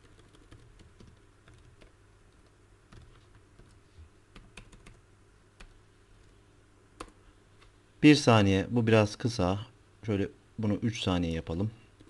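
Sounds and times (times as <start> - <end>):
keyboard typing: 0.0 - 5.0, 7.0 - 7.2.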